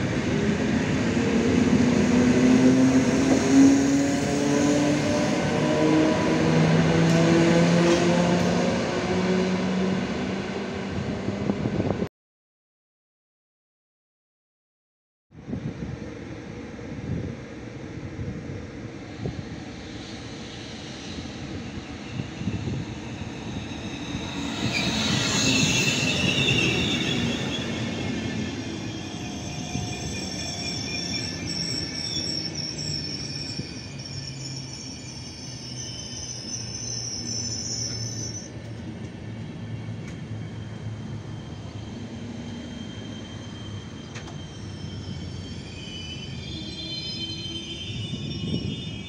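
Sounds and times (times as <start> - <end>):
train rumbling past: 0.0 - 12.1, 15.4 - 49.0
train wheels and brakes squealing: 19.0 - 49.0.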